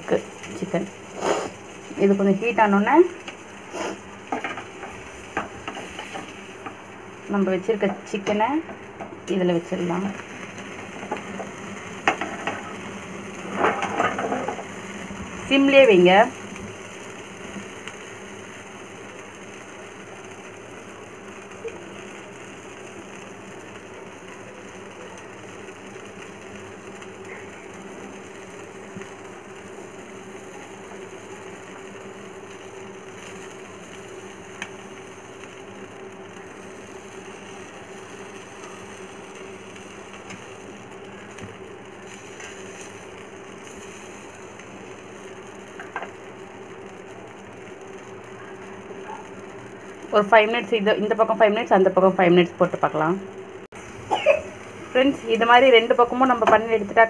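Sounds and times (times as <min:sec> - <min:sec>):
gas burner hum and hiss: 0:00.0 - 0:57.0.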